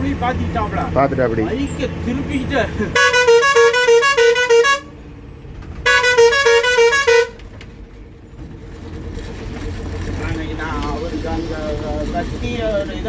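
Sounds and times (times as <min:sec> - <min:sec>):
bus engine running: 0:00.0 - 0:13.0
bus horn pulsing: 0:02.9 - 0:05.0, 0:05.8 - 0:07.5.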